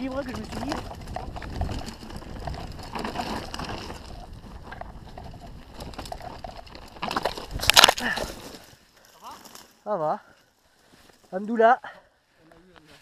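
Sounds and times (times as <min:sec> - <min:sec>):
bike clattering: 0:00.0 - 0:09.7
tyres crunching over stones: 0:00.0 - 0:09.8.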